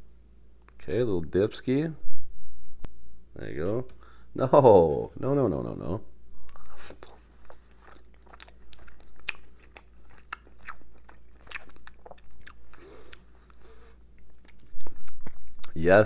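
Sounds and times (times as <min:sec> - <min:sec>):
crunchy chewing: 0:06.4 - 0:15.9.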